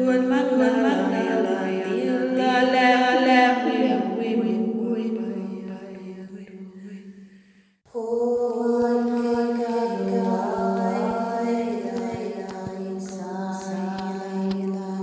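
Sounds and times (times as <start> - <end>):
person chanting held notes: 7.9 - 15.0.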